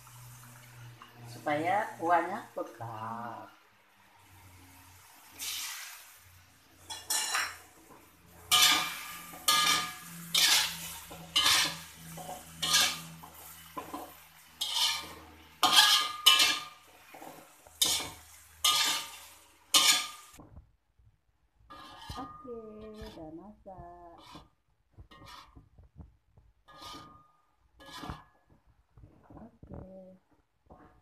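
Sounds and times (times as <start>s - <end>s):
metal spatula scraping a wok: 4.2s - 20.4s, 21.6s - 26.0s, 26.6s - 29.5s.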